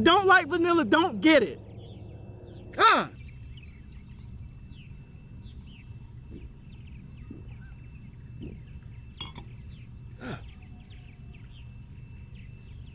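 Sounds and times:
low outdoor rumble: 0.0 - 12.9
faint bird chirps: 0.4 - 12.9
glass clinking on table: 9.2 - 9.5.

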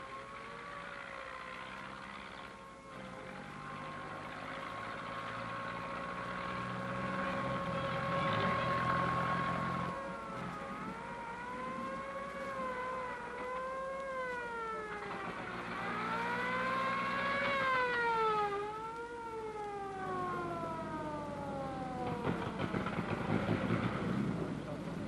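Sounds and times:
fire engine siren wailing: 0.0 - 25.0
vehicle engine running: 0.0 - 25.0.

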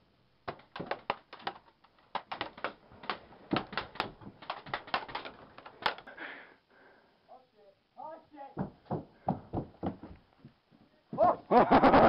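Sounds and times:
pellets striking wooden walls: 0.0 - 6.2, 8.5 - 11.4.

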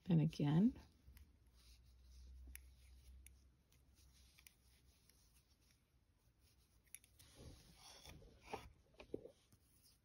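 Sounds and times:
crochet hook rubbing and ticking: 0.8 - 7.2.

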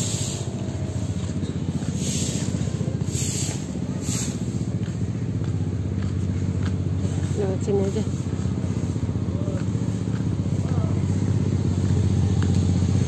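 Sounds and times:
short hissing scrapes: 0.0 - 0.6, 2.0 - 4.6
vehicle engine idling: 0.0 - 13.0.

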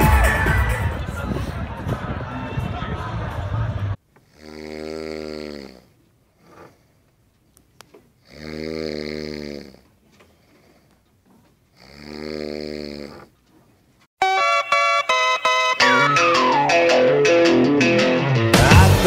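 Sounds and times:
person snoring: 4.3 - 6.9, 8.2 - 9.8, 11.8 - 13.3.

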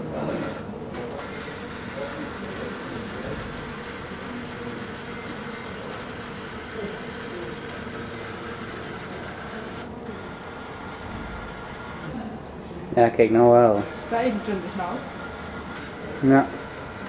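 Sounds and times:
robot motors and gears whirring: 1.2 - 12.1.

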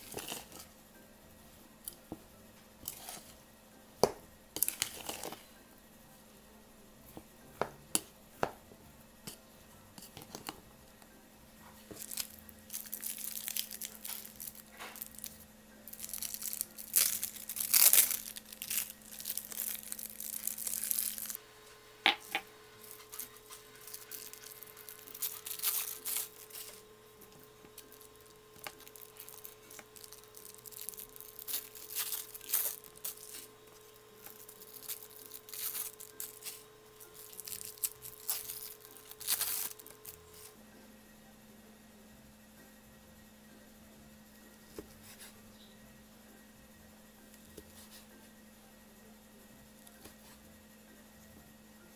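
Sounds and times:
plastic film crinkling: 11.8 - 21.4, 22.8 - 40.6.

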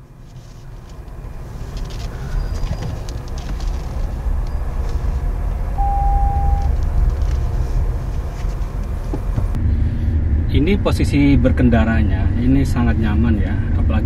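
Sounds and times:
tyre and road rumble: 0.0 - 9.7
short steady tone: 5.8 - 6.7.

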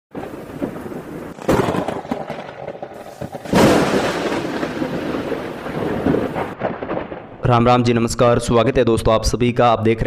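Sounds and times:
rain hissing: 0.1 - 6.8
thunder cracks and rumbles: 0.1 - 8.5.

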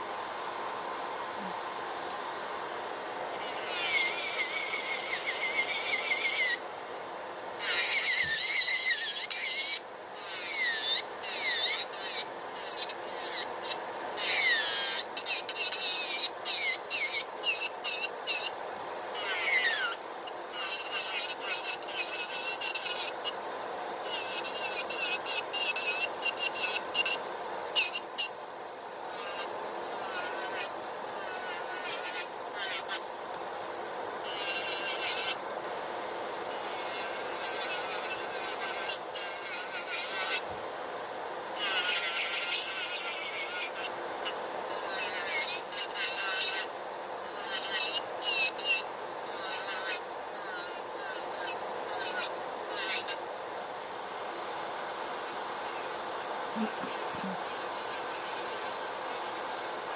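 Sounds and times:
dust collector fan noise: 0.0 - 47.3, 48.0 - 59.9
bit rasping on nail: 29.1 - 33.0, 36.5 - 40.4, 55.0 - 59.8.

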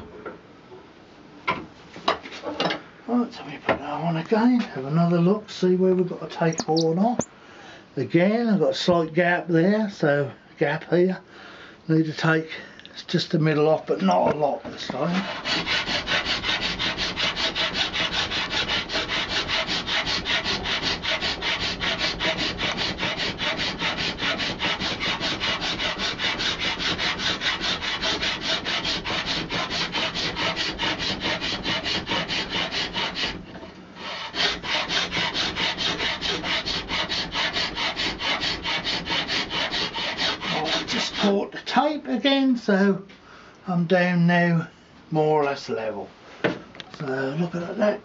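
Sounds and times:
hand file rasping on horn: 14.9 - 41.4.

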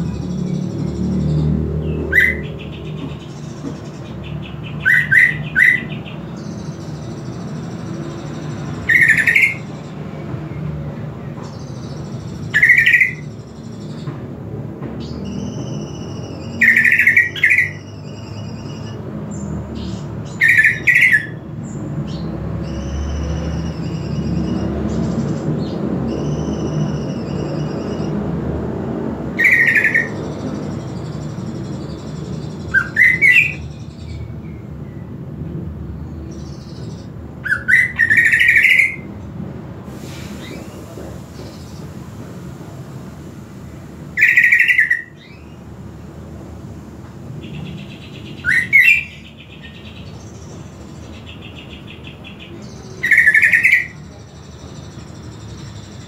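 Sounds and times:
bird warbling and calling: 0.0 - 10.1, 11.5 - 14.0, 15.0 - 19.1, 19.7 - 21.5, 29.3 - 34.4, 36.3 - 39.1, 44.1 - 46.1, 47.3 - 56.0.

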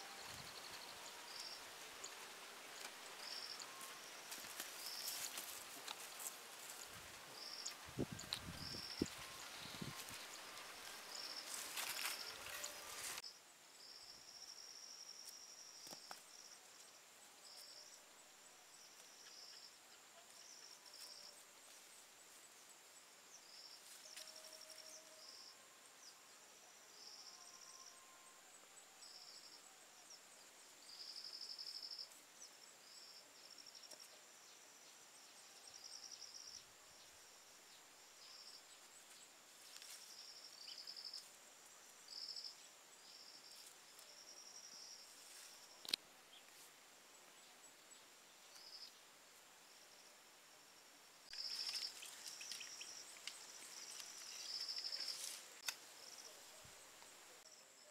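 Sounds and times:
insects trilling: 0.0 - 22.7, 49.7 - 57.9
rustling: 51.3 - 55.8.

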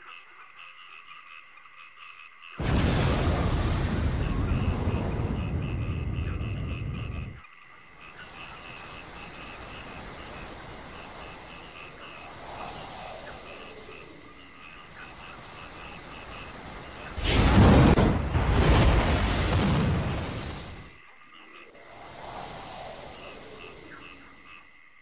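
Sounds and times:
frogs croaking: 0.0 - 25.0
loud rumbling blast: 2.6 - 7.3, 17.2 - 20.8
steady hiss: 2.6 - 25.0.

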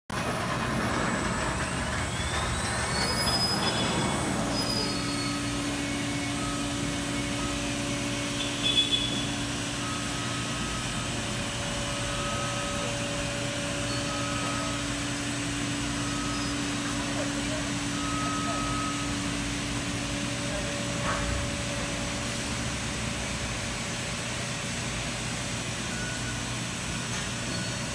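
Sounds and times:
machine spindle whine: 0.2 - 27.9
short high beeping tones: 3.4 - 19.5.

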